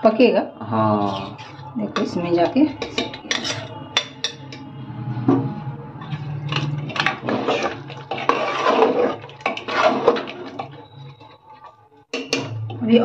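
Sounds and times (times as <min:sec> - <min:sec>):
ladle clinking and scraping pot: 0:01.0 - 0:04.7, 0:06.0 - 0:12.6.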